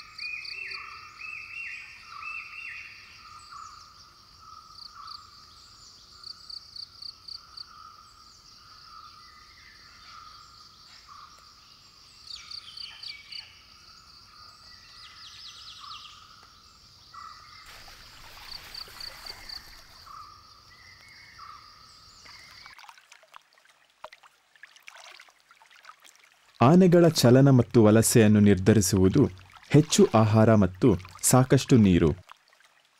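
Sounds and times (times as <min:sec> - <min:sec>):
high insect drone: 0:17.6 - 0:20.8.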